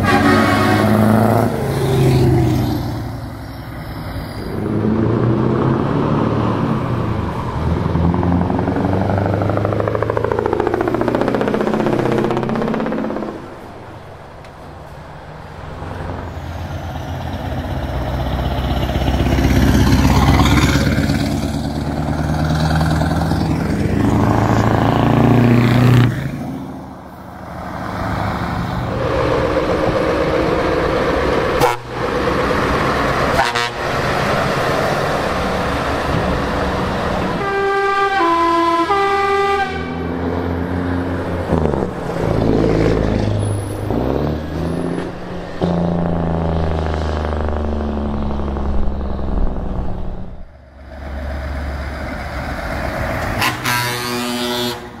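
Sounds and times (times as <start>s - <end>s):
musical air horn playing a tune: 0.0s - 1.2s, 31.6s - 31.9s, 33.4s - 33.8s, 37.4s - 40.1s, 53.3s - 55.0s
truck horn: 0.0s - 1.6s, 31.6s - 32.4s, 33.2s - 34.2s, 37.3s - 40.4s, 53.2s - 55.0s
heavy trucks driving past: 0.0s - 55.0s.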